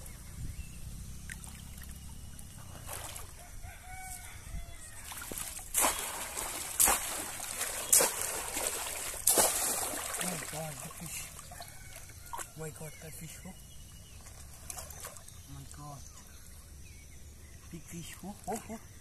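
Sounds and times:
water splashing: 1.2s - 3.4s, 5.0s - 12.6s, 14.0s - 15.8s
rooster crowing: 3.3s - 5.1s, 11.5s - 12.4s.

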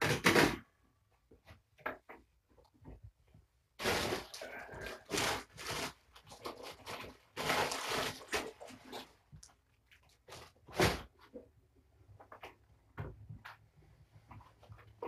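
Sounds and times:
rustling crinkling handling noise: 3.8s - 11.5s.

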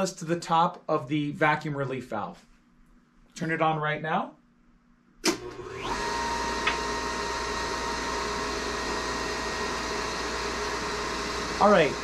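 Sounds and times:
vacuum pump motor whine: 5.3s - 12.0s.

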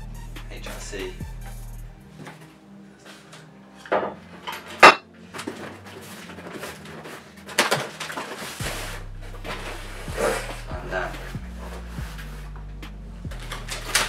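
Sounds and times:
metal bars clanking on table: 3.9s - 5.0s.

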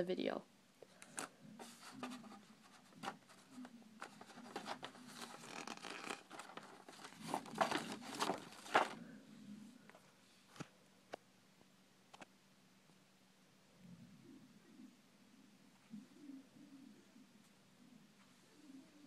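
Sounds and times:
paper rustling and crinkling: 1.0s - 9.1s.

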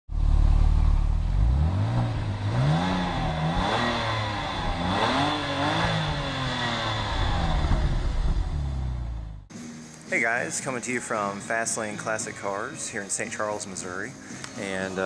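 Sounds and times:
car engine idling and revving: 0.1s - 9.5s.

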